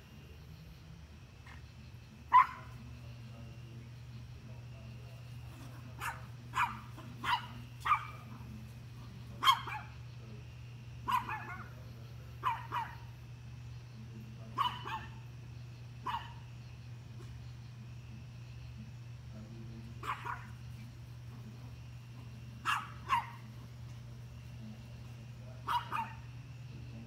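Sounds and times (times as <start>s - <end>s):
dog barking: 2.3s - 2.8s, 5.6s - 8.4s, 9.4s - 10.0s, 11.0s - 11.8s, 12.4s - 13.2s, 14.5s - 15.3s, 16.0s - 16.5s, 20.0s - 20.6s, 22.6s - 23.5s, 25.6s - 26.3s.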